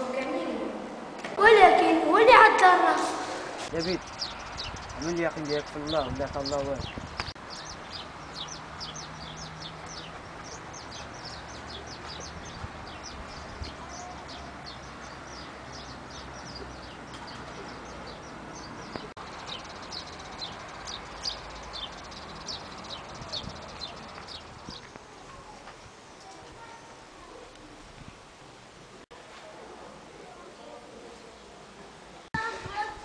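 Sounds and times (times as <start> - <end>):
small birds chirping: 3.6 - 27.8.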